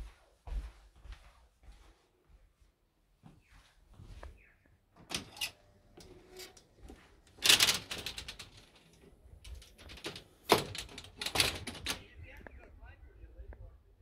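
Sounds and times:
metal screen door rattling: 0:05.0 - 0:06.7, 0:07.3 - 0:12.2.

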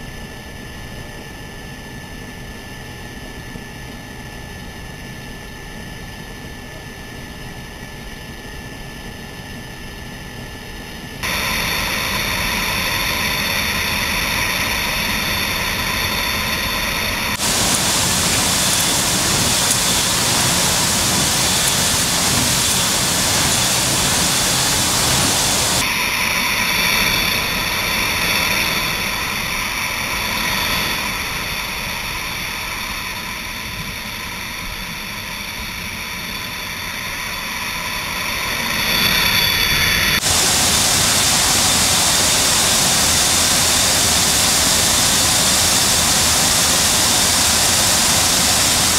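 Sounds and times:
aircraft engine noise: 0:11.2 - 0:33.4, 0:35.9 - 0:48.9
wind rushing: 0:17.3 - 0:25.9.

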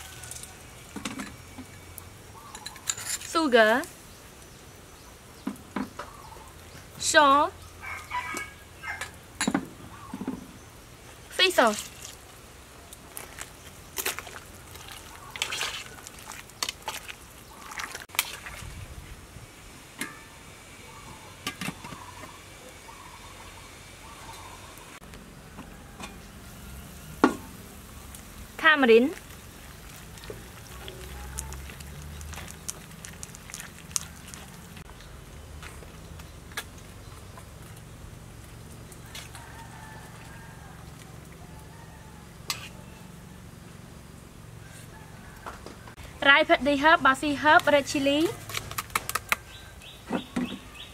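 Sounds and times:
spoon stirring liquid sloshing: 0:14.0 - 0:18.7, 0:29.2 - 0:34.9.

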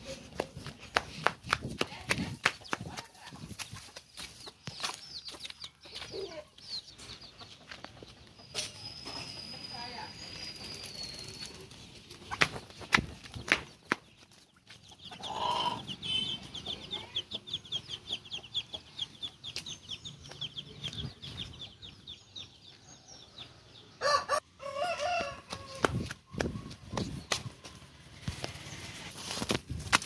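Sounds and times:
chickens clucking and squawking: 0:14.3 - 0:19.8.

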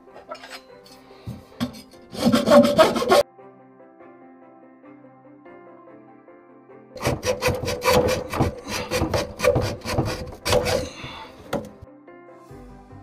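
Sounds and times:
background music: 0:00.0 - 0:13.0
hand saw cutting plastic pipe: 0:01.3 - 0:03.2, 0:07.0 - 0:11.8.

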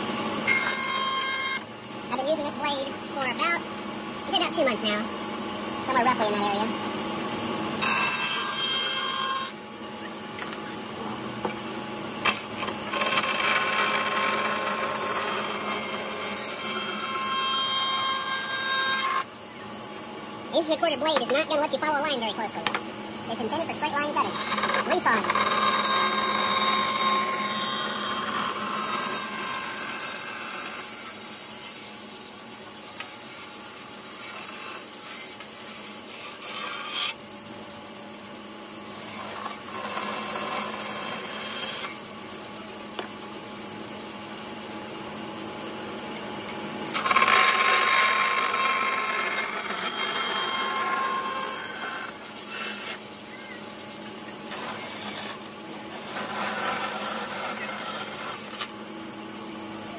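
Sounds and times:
running saw hum: 0:00.0 - 0:45.1, 0:46.4 - 0:59.9
bandsaw cutting wood: 0:00.4 - 0:02.4, 0:07.8 - 0:09.6, 0:12.2 - 0:19.3, 0:23.4 - 0:32.1, 0:32.9 - 0:37.2, 0:38.9 - 0:42.1, 0:46.8 - 0:53.1, 0:54.5 - 0:58.8.

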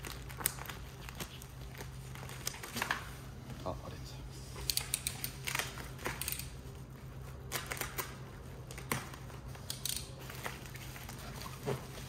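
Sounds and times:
bubble wrap crinkling and snapping: 0:00.0 - 0:03.2, 0:06.8 - 0:12.0.

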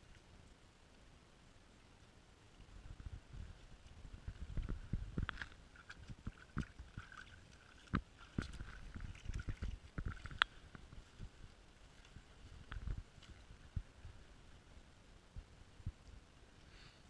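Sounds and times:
dog paws splashing in water: 0:03.4 - 0:13.8.

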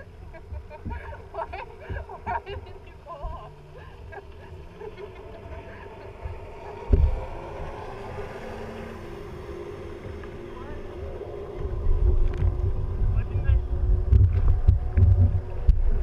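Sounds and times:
jet ski engines: 0:00.0 - 0:16.0
low thump: 0:06.9 - 0:07.4, 0:13.8 - 0:16.0.

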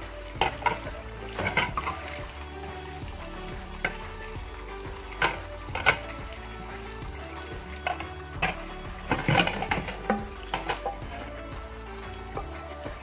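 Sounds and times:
tap water splashing in sink: 0:00.0 - 0:13.0
pots knocking: 0:00.4 - 0:02.4, 0:03.8 - 0:06.4, 0:07.1 - 0:11.7.

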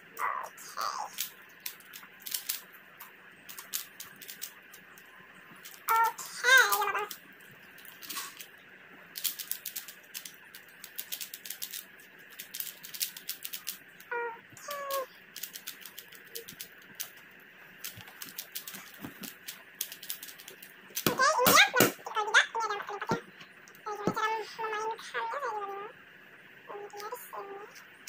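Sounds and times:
speed cube clicking: 0:00.8 - 0:02.7, 0:03.5 - 0:04.8, 0:09.2 - 0:13.8, 0:14.7 - 0:17.2, 0:17.8 - 0:21.9.

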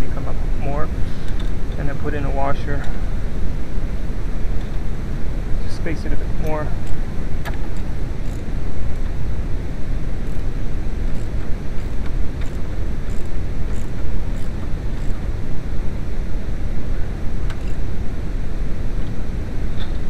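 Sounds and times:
steady low rumble: 0:00.0 - 0:20.0
hand tool clicks: 0:11.1 - 0:15.2.

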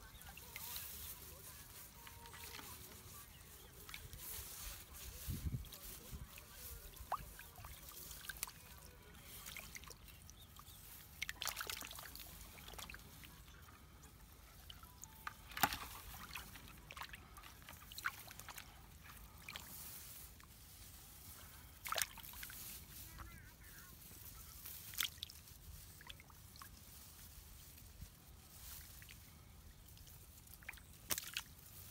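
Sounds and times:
hands sloshing in muddy water: 0:00.0 - 0:31.9
sharp water splashes: 0:06.6 - 0:14.0, 0:14.6 - 0:20.2, 0:21.6 - 0:22.8, 0:30.4 - 0:31.8.

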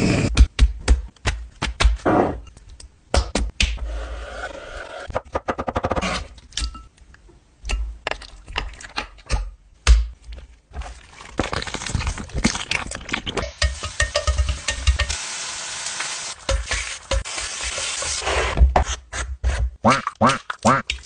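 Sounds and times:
frying pan crackling: 0:12.2 - 0:18.2.

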